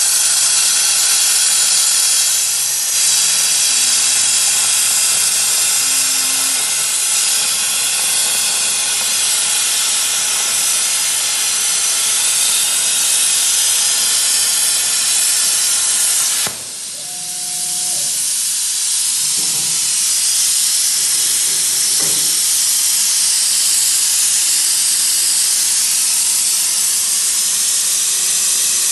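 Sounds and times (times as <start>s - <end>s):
plasma cutting torch hissing: 0.0s - 28.9s.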